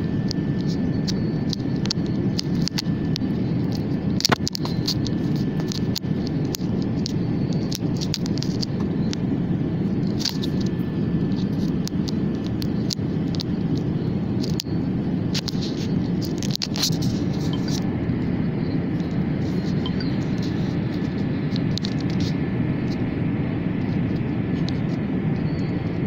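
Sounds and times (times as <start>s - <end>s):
airplane cabin rumble: 0.0s - 26.0s
camera rubbing against cloth: 15.4s - 17.9s, 19.4s - 22.4s.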